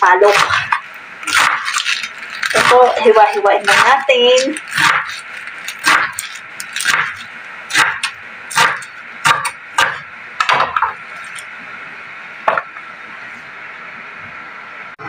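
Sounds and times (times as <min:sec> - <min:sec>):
knife chopping on wooden board: 0:00.3 - 0:01.8, 0:04.7 - 0:05.2, 0:05.8 - 0:10.9.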